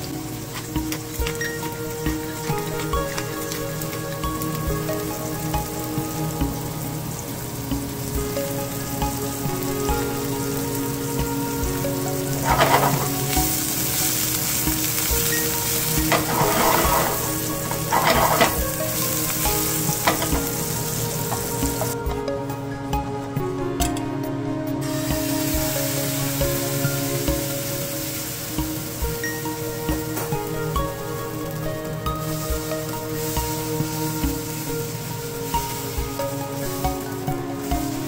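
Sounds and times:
onions sizzling in a frying pan: 0:00.0 - 0:23.0, 0:24.7 - 0:38.0
stirring in a pan: 0:07.6 - 0:22.0.

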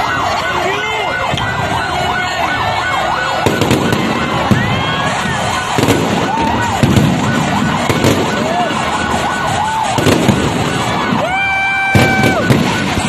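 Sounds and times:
electronic siren wailing: 0:00.0 - 0:13.0
fireworks bursting and crackling: 0:00.0 - 0:13.0
firework bangs: 0:01.3 - 0:13.0
firework whistles: 0:03.4 - 0:13.0.

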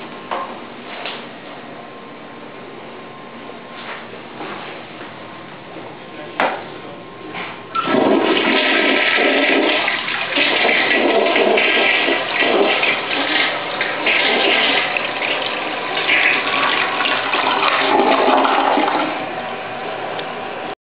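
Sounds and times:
toilet flush click: 0:07.8 - 0:19.3
toilet water rushing: 0:07.8 - 0:20.1.

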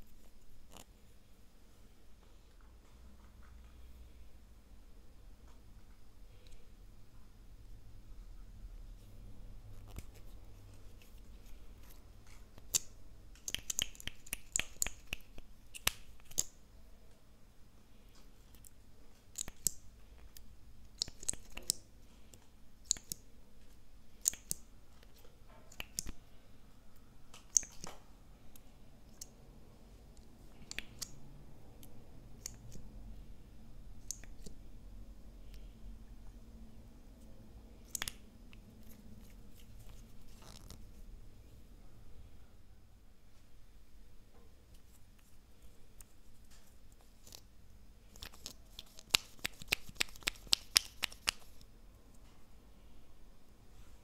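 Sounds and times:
small sharp plastic clicks: 0:12.3 - 0:16.6, 0:18.5 - 0:23.2, 0:24.2 - 0:26.2, 0:27.3 - 0:29.3, 0:34.0 - 0:34.6.

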